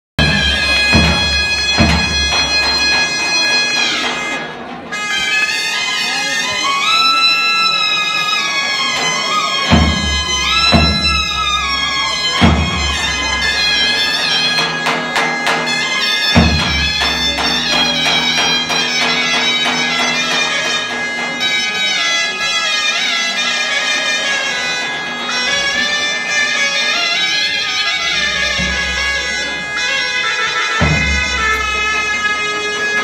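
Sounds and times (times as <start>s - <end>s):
heavy drum strikes: 0.2s - 3.4s, 9.7s - 20.9s, 28.1s - 29.7s, 30.8s - 32.2s
zurna drone note: 0.2s - 7.7s, 8.7s - 33.0s
zurna melody: 0.2s - 33.0s.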